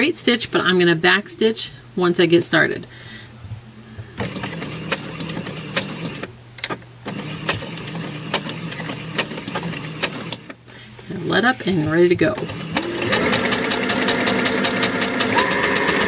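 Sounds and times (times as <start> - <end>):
sewing machine stitching: 4.2 - 6.3, 7.0 - 10.6, 12.3 - 16.0.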